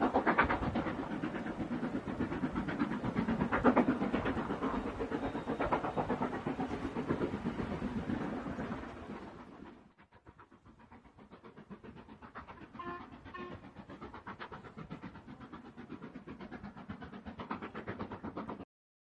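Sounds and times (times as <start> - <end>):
steam locomotive rhythmic beat: 0.0 - 18.6
steam whistle toots: 12.6 - 13.8.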